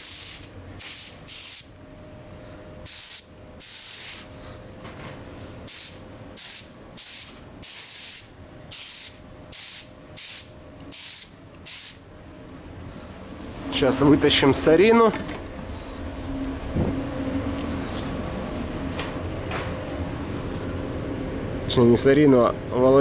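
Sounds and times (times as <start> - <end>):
spray gun hissing bursts: 0.0 - 1.7, 2.9 - 4.2, 5.7 - 12.0
steady background noise: 0.0 - 23.0.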